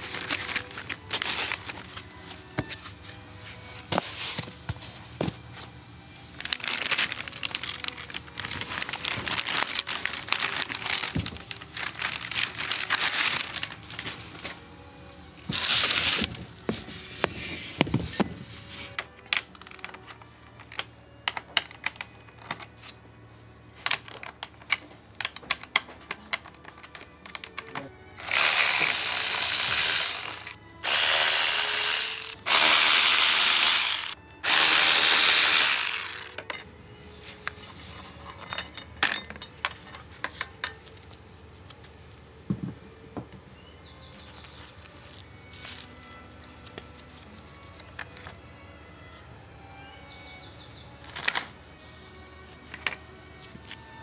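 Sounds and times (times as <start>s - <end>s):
plastic wrapping crinkling: 6.4s - 14.5s, 27.3s - 36.4s
cordless ratchet running: 28.2s - 36.4s.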